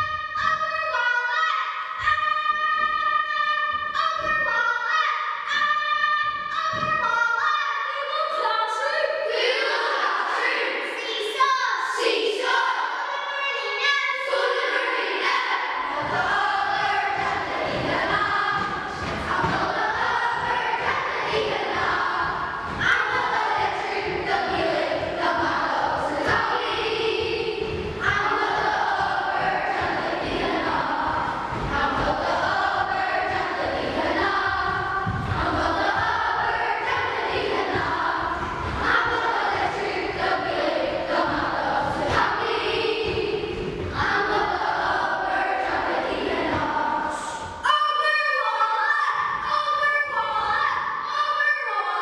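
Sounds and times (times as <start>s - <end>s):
children's choir singing: 0.0s - 52.0s
low accompanying sound: 13.6s - 47.7s.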